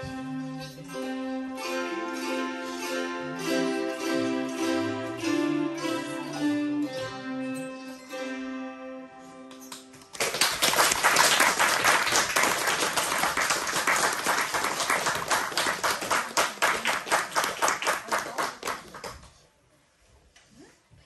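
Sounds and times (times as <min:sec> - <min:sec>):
people clapping: 0:09.5 - 0:19.4.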